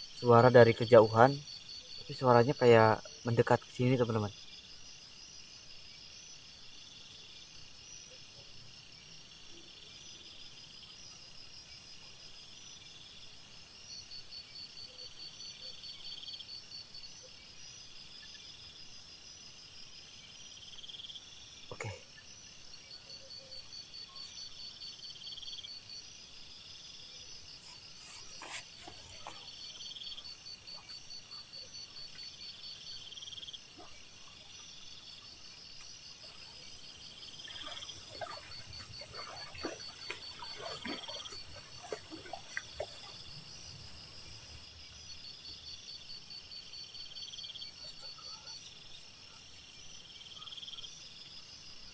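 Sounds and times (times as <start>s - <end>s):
night insects trilling: 0.0s - 51.9s.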